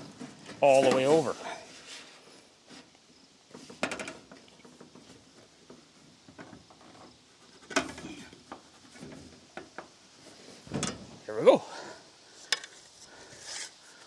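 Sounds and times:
sheet-metal roofing clicks and knocks: 3.6 - 5.1.

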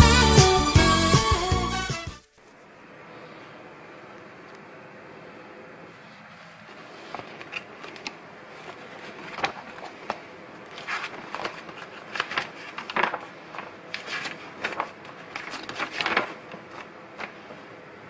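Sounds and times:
pages turning: 6.6 - 17.6.

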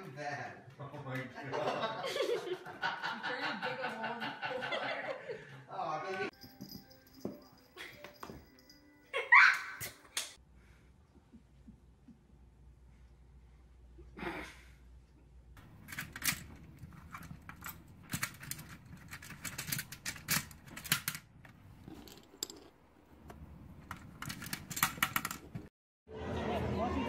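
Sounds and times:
plastic discs clicking and rattling: 15.6 - 22.6, 23.2 - 25.7.

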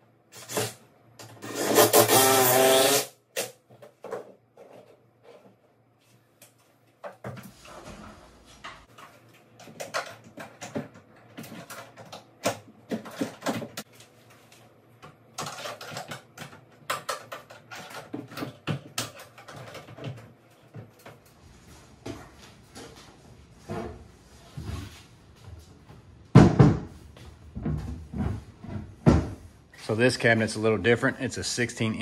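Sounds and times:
clicks and knocks of cabinet parts: 7.0 - 13.9, 15.0 - 21.3, 25.5 - 29.5.

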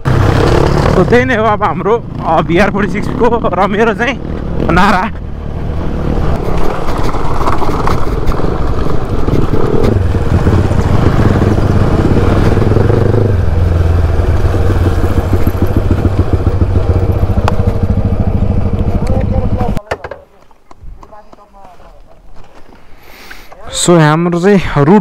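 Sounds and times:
motorcycle engine running: 0.0 - 19.8.

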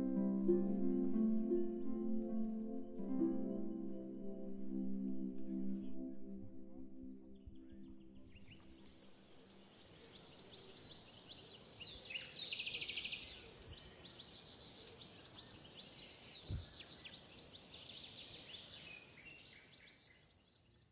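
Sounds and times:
birds chirping and calling: 7.9 - 20.4
low thump: 16.5 - 16.7.

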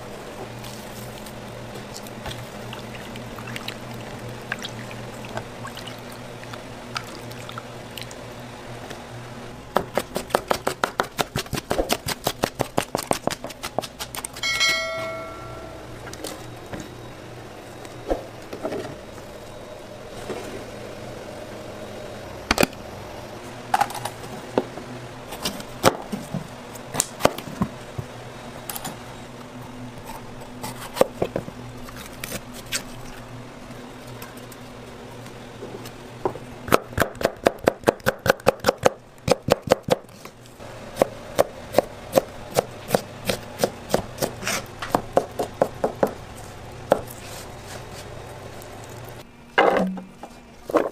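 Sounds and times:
short high tone: 14.4 - 16.0.

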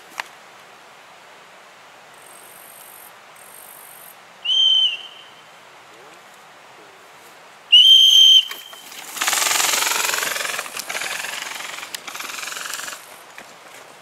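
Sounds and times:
shrill whistle blast: 4.5 - 5.3, 7.7 - 8.9.

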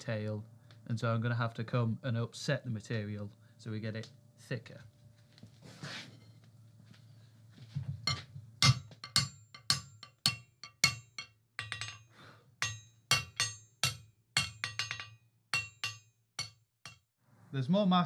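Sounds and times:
hammer striking steel on anvil: 8.1 - 17.0.

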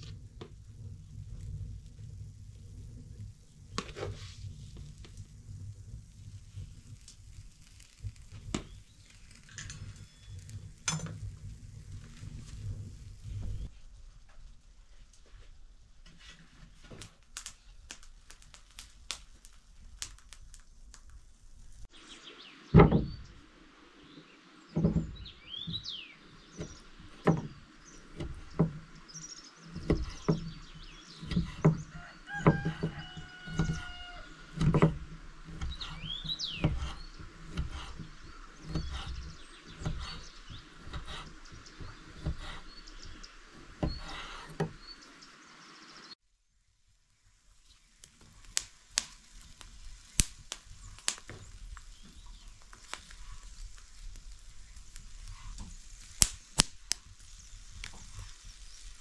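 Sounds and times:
birds chirping: 8.6 - 10.7, 21.9 - 46.2, 49.2 - 59.0
knocks and thumps: 22.7 - 23.3, 24.7 - 25.8, 26.6 - 28.9, 31.2 - 36.0.

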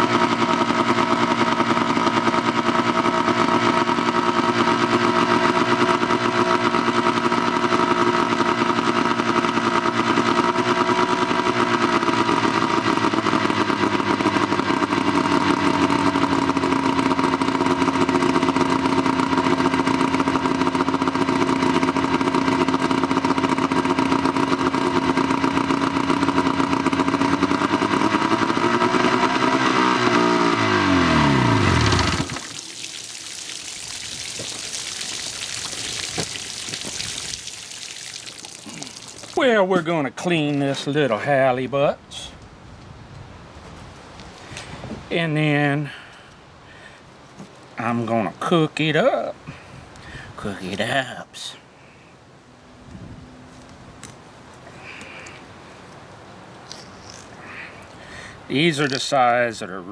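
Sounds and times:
outboard motor running: 0.0 - 40.9.

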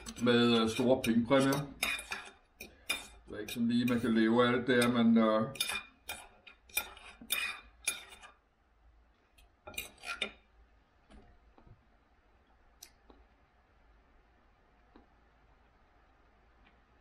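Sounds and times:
cutlery clinking on a plate: 0.0 - 4.1, 4.7 - 8.3.

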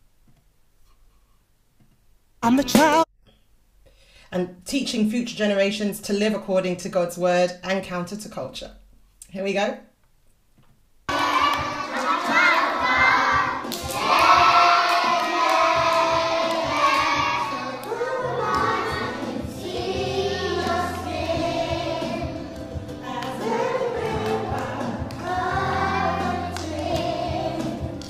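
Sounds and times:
young children singing: 11.1 - 28.0.

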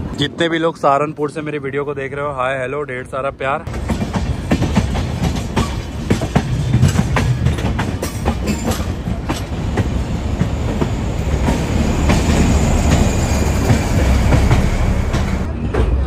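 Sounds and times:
heavy train rumble: 0.0 - 16.0
train wheels clattering over rail joints: 3.7 - 16.0.

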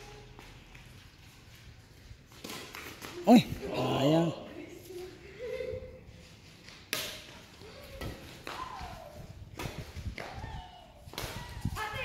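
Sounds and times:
racket hitting shuttlecock: 6.9 - 8.9.

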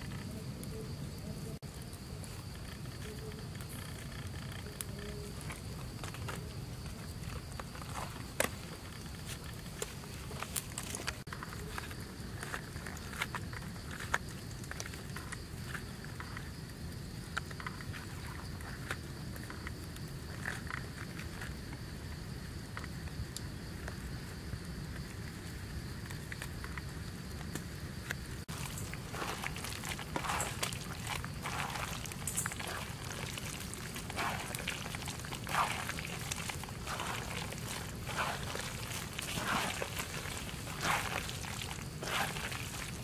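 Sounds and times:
hands squishing food in sauce: 28.5 - 43.0.

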